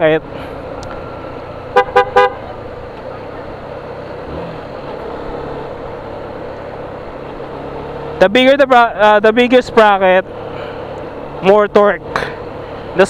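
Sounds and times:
motorcycle engine drone: 0:00.0 - 0:13.0
road and wind noise: 0:00.0 - 0:13.0
vehicle horn toots: 0:01.7 - 0:02.5.

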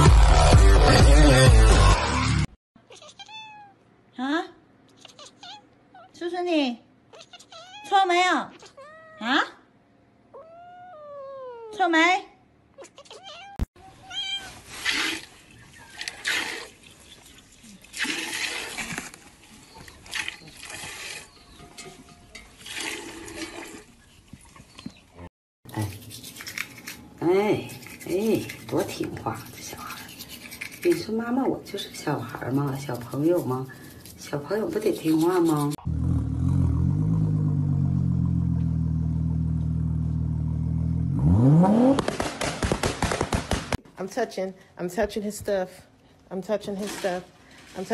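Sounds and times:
milk squirting into pail: 0:14.8 - 0:21.3, 0:22.6 - 0:24.0
car engine idling and revving: 0:35.8 - 0:42.1
exhaust pops and bangs: 0:41.8 - 0:43.8.

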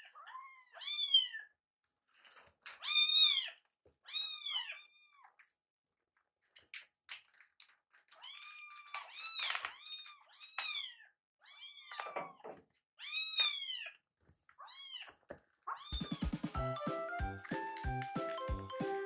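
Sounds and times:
kittens meowing: 0:00.0 - 0:01.5, 0:02.8 - 0:05.4, 0:08.1 - 0:16.3
background music with steady beat: 0:16.0 - 0:19.0.

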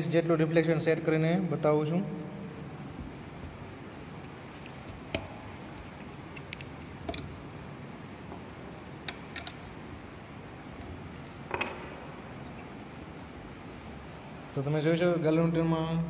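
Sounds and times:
steady background hiss: 0:00.0 - 0:16.0.

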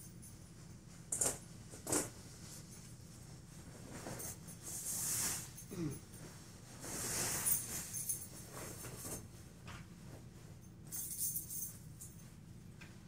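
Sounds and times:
cloth rustling: 0:01.0 - 0:11.8.

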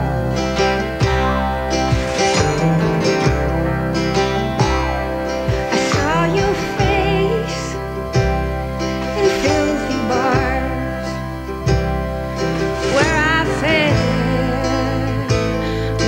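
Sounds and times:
acoustic guitar: 0:00.0 - 0:16.0
bass accompaniment: 0:00.0 - 0:16.0
woman singing: 0:04.6 - 0:08.0, 0:09.0 - 0:11.2, 0:12.7 - 0:16.0.

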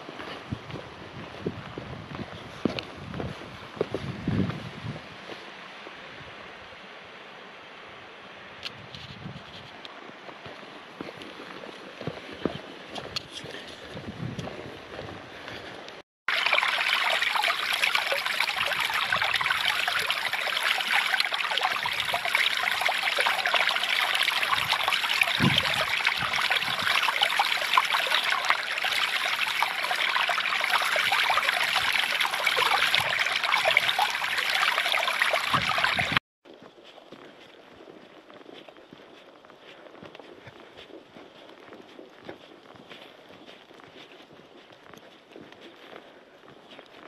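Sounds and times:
stream babbling over rocks: 0:16.3 - 0:36.2.

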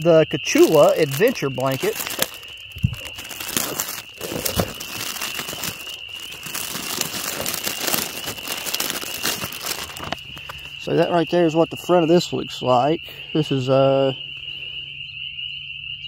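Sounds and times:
plastic packaging crinkling: 0:00.0 - 0:10.9
frog chorus: 0:00.0 - 0:16.0.

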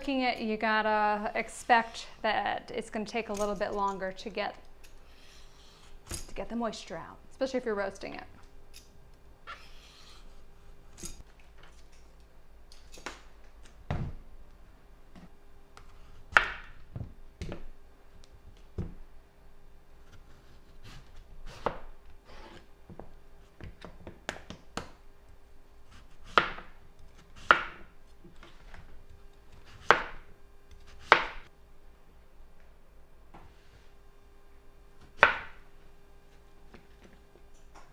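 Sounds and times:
knife chopping on cutting board: 0:30.9 - 0:31.4.

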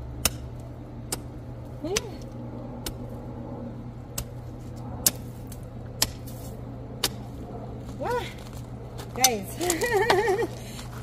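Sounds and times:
steady low hum: 0:00.0 - 0:11.0
metal hoe chopping into dry soil: 0:04.1 - 0:07.4.

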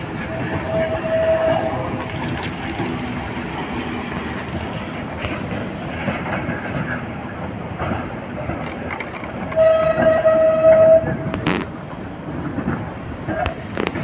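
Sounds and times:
tram wheels squealing: 0:00.0 - 0:04.5, 0:08.5 - 0:14.0
tram rolling on street track: 0:00.0 - 0:14.0.

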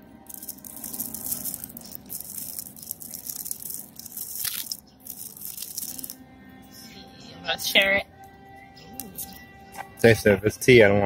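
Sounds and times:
plastic wrapper crinkling and tearing: 0:00.3 - 0:06.2.

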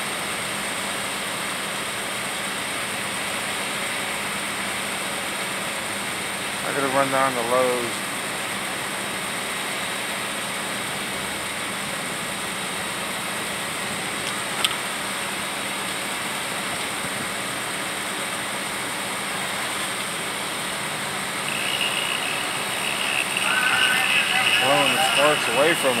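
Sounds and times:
engine idling: 0:00.0 - 0:26.0.

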